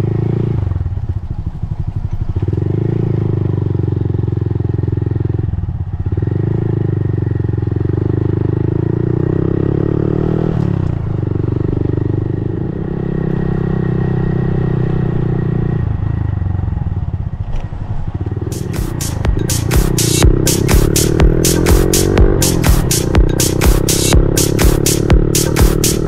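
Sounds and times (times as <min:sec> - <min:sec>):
small motorbike engine running: 0:17.0 - 0:26.0
electronic music with hard beat: 0:18.5 - 0:26.0.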